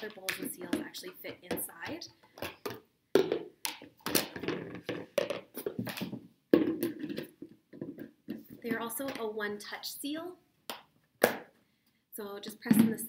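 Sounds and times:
plastic bowls knocking and clacking: 0:00.0 - 0:09.3, 0:12.6 - 0:13.0.

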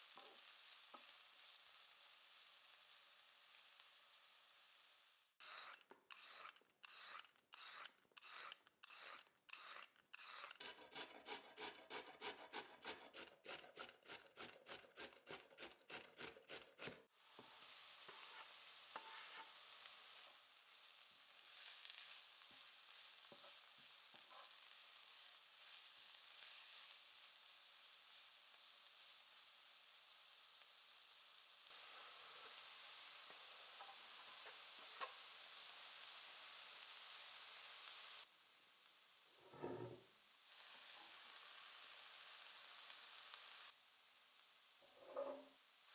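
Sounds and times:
vegetables sizzling in oil: 0:00.0 - 0:10.5, 0:17.0 - 0:45.9
peeler scraping carrot: 0:05.4 - 0:17.0.

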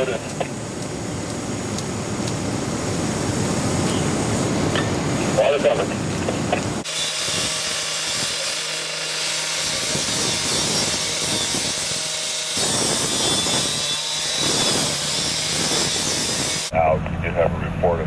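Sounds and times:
abrasive blade grinding metal: 0:06.8 - 0:16.7.

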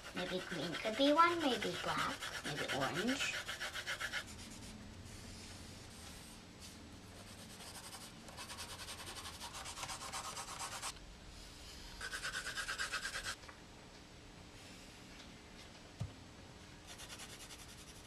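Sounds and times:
pencil scribbling on paper: 0:00.0 - 0:04.6, 0:07.2 - 0:10.9, 0:12.0 - 0:13.4, 0:16.9 - 0:18.0.

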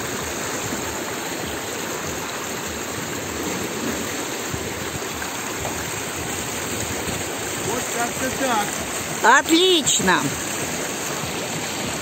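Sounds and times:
water rushing down slides: 0:00.0 - 0:12.0.

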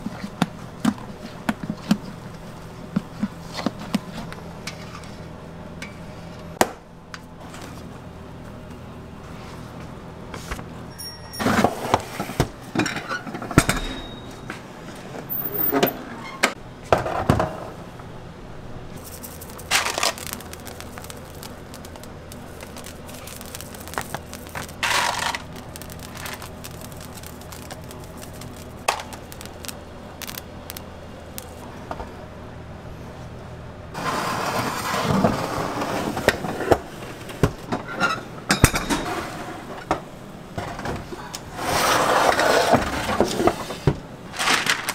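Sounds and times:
steady machine hum: 0:17.7 - 0:34.0.

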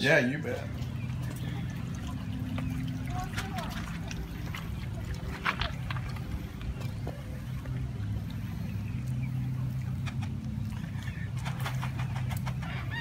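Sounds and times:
low mechanical hum: 0:00.0 - 0:13.0
chickens calling: 0:00.6 - 0:13.0.

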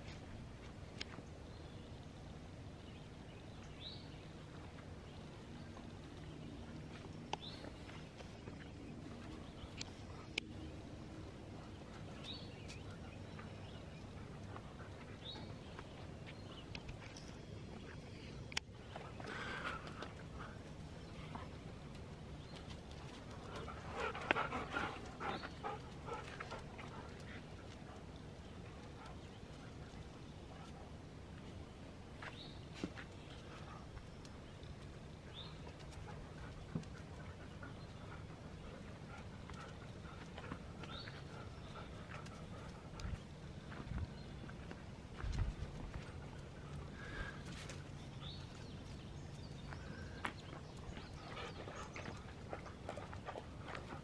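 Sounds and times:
outdoor background noise: 0:00.0 - 0:54.0
bird chirp: 0:01.0 - 0:30.8, 0:32.2 - 0:44.8, 0:46.0 - 0:53.9
dogs vocalising: 0:23.5 - 0:27.3.

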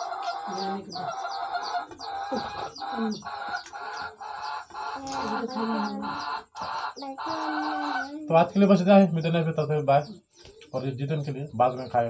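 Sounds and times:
chickens clucking: 0:00.0 - 0:12.0
small birds chirping: 0:00.0 - 0:12.0.

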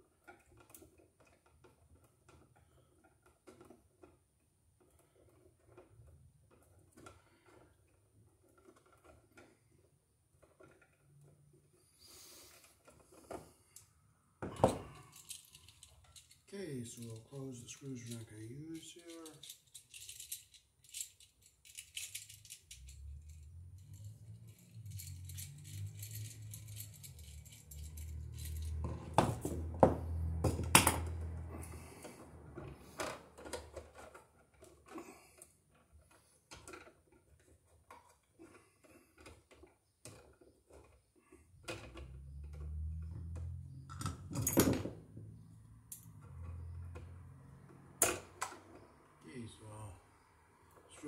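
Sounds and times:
small metallic clicks and clinks: 0:14.5 - 0:29.6, 0:33.0 - 0:49.9.

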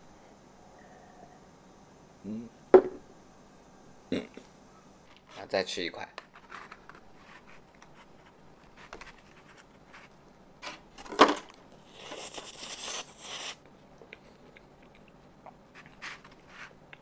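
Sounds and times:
sharp knock: 0:02.8 - 0:03.0.

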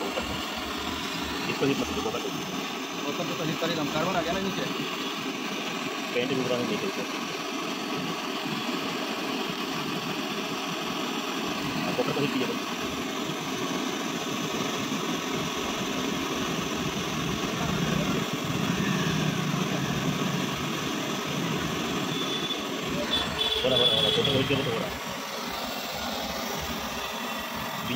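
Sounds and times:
torch flame hissing: 0:00.0 - 0:27.9.

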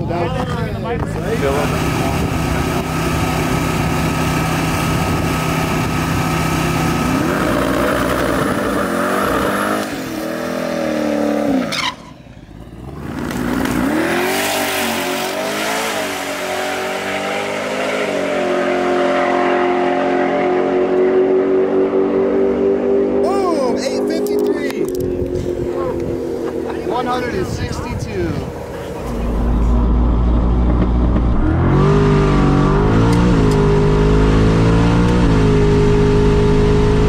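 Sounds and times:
car engine idling and revving: 0:00.0 - 0:37.0.

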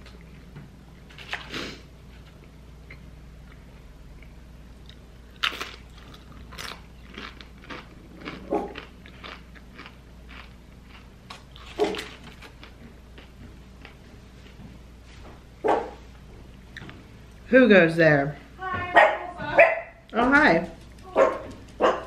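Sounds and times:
chips being crunched and chewed: 0:04.8 - 0:14.0.

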